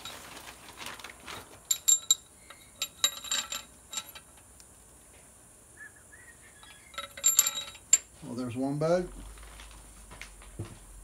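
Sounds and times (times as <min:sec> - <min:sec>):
metal bolts clinking: 0:01.7 - 0:04.4, 0:06.6 - 0:08.1.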